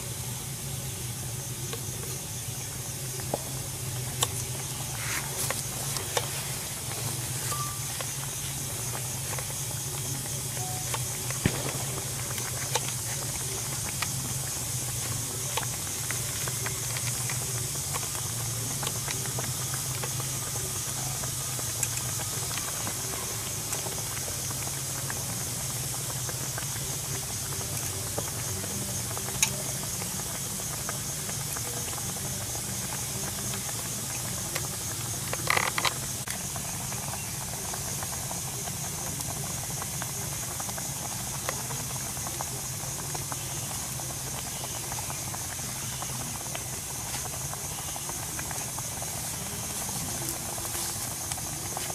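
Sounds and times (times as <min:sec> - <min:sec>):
high hiss: 0:00.0 - 0:51.9
low hum: 0:03.0 - 0:19.5.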